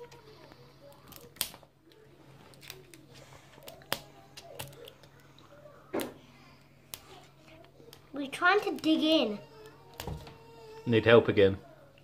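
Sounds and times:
wrapper clicks and crackles: 0:00.9 - 0:05.4.

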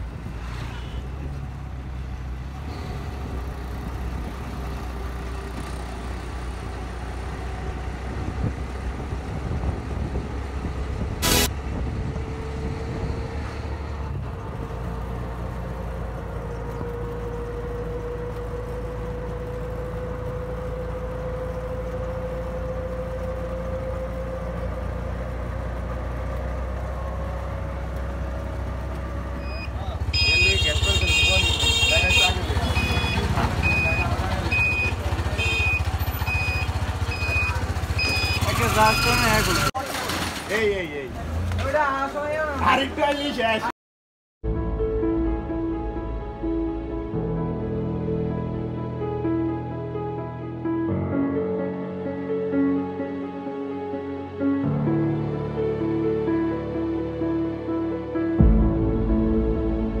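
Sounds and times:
low road rumble: 0:00.0 - 0:43.7, 0:44.4 - 1:00.0
small engine running: 0:35.8 - 0:40.2.

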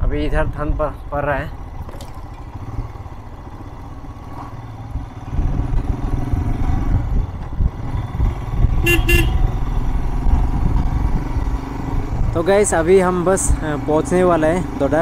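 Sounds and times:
motorcycle engine running: 0:00.0 - 0:15.0
horn toots: 0:08.8 - 0:09.6.

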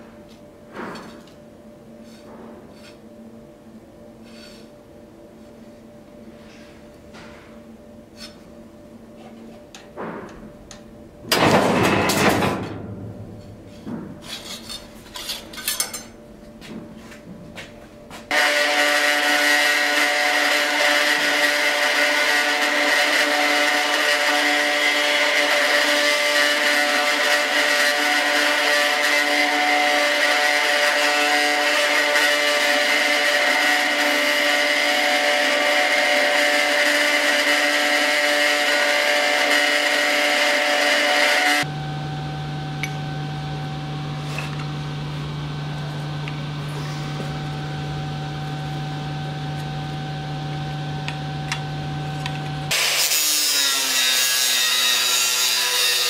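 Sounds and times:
sheet-metal shear clunk: 0:11.2 - 0:16.1
belt grinder whining: 0:18.3 - 0:41.7.

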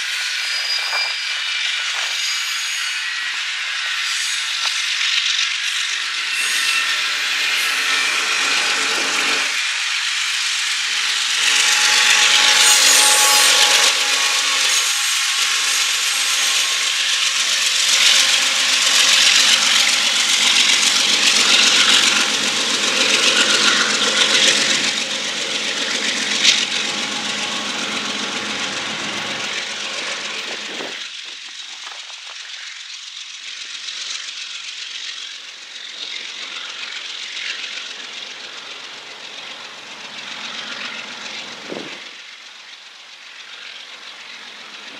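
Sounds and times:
steel wheels grinding on rail: 0:00.0 - 0:44.9
faint wheel squealing: 0:11.0 - 0:31.1.

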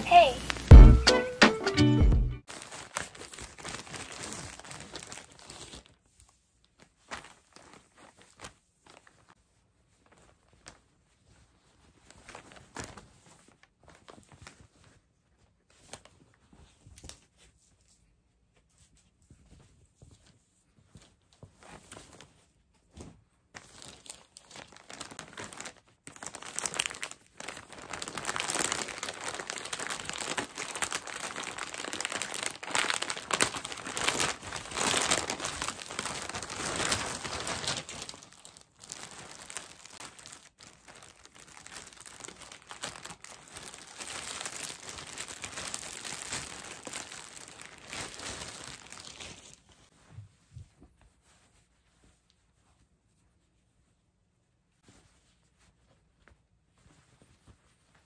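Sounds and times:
plastic tearing: 0:02.4 - 0:06.0, 0:23.6 - 0:49.8
plastic bag crinkling and rustling: 0:02.4 - 0:52.8.

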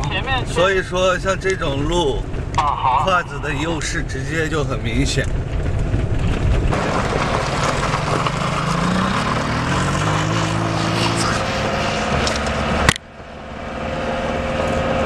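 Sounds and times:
tyres on gravel: 0:00.0 - 0:12.7
wind rushing: 0:05.4 - 0:12.9
motorcycle engine revving: 0:06.4 - 0:15.0.

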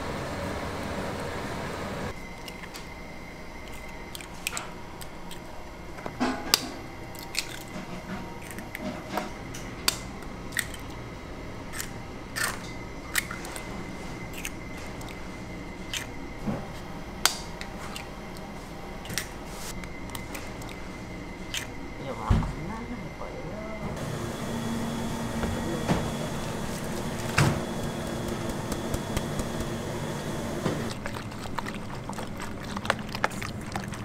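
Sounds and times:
eggshells cracking: 0:07.1 - 0:07.8.

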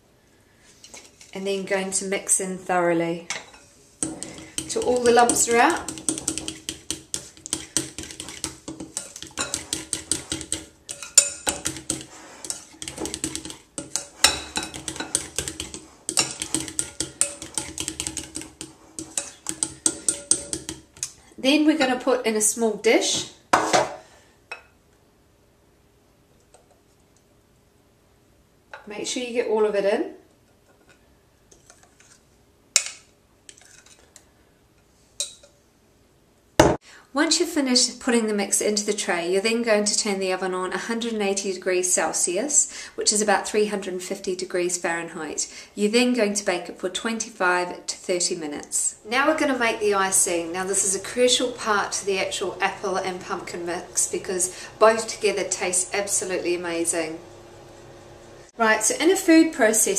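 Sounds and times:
spatula scraping glass bowl: 0:03.5 - 0:20.8.

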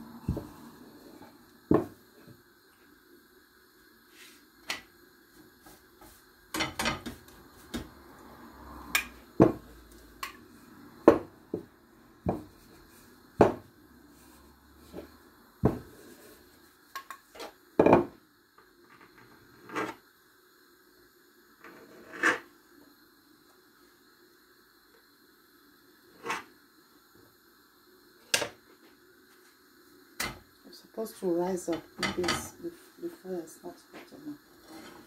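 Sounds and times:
frying pan on gas hob: 0:00.0 - 0:35.0
kitchen utensils knocking and clinking: 0:06.5 - 0:07.2, 0:31.7 - 0:32.6
knife striking worktop: 0:13.4 - 0:13.6.

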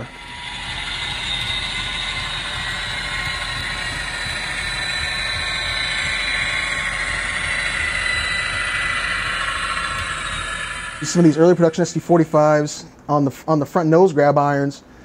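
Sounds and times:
model train motor whirring: 0:00.0 - 0:11.7
high whine falling in pitch: 0:00.0 - 0:12.8.

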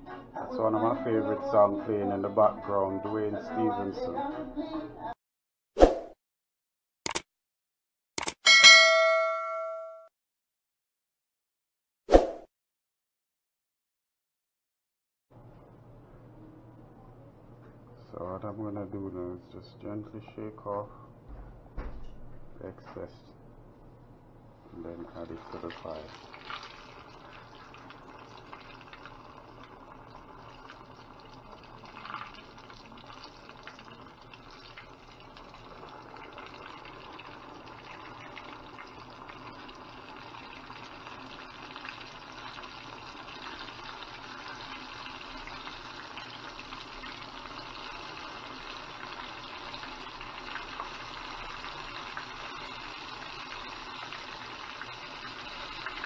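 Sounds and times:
chicken sizzling in hot oil: 0:24.7 - 0:56.0.

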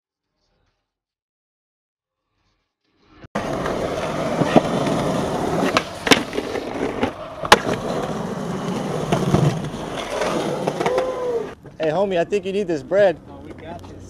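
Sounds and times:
skateboard clacks: 0:03.4 - 0:11.8
skateboard wheels on rough concrete: 0:03.4 - 0:14.0.

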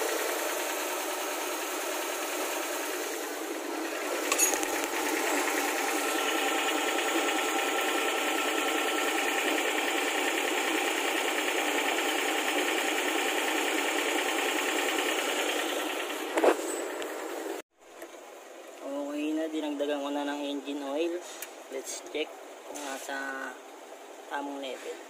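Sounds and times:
small engine clattering: 0:00.0 - 0:17.6.

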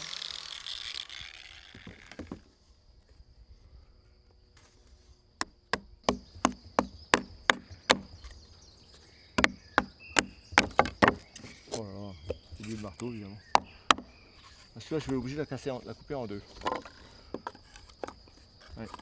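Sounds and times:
angle grinder winding down: 0:00.0 - 0:02.2
mallet striking chisel into wood: 0:05.4 - 0:08.1, 0:09.4 - 0:11.4.

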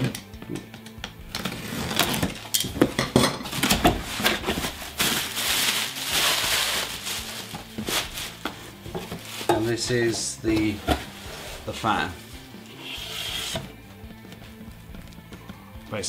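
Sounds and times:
cardboard flaps clicking and knocking: 0:02.0 - 0:04.8
bubble wrap crackling: 0:03.5 - 0:09.9.

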